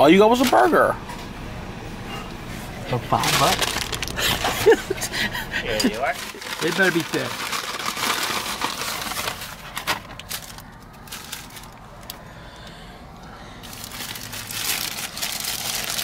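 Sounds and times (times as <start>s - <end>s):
paper crinkling and rustling: 0.3s - 0.8s, 3.0s - 4.8s, 5.8s - 12.1s, 13.6s - 16.0s.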